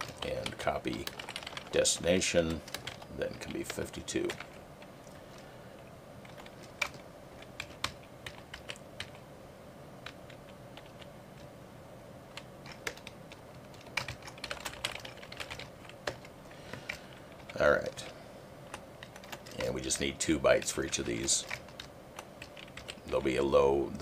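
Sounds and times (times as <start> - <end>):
typing on computer keyboard: 0.0 - 4.6, 6.2 - 9.2, 10.0 - 11.5, 12.3 - 18.1, 18.7 - 19.7, 20.5 - 23.2.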